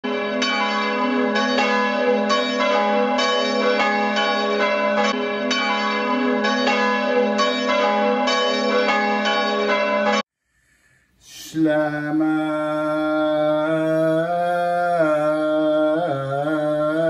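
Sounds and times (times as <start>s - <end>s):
church bells ringing: 0.0s - 10.2s.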